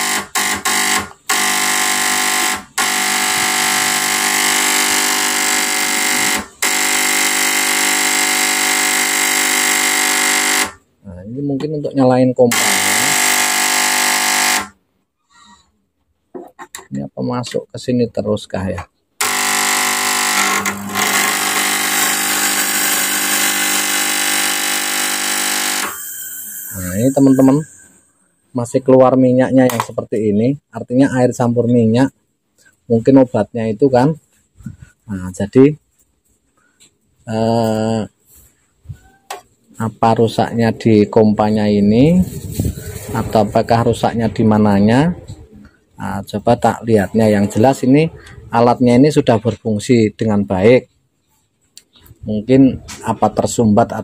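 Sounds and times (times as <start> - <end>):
fluid pump buzzing: 0.0 - 10.8, 12.5 - 14.8, 19.2 - 27.9.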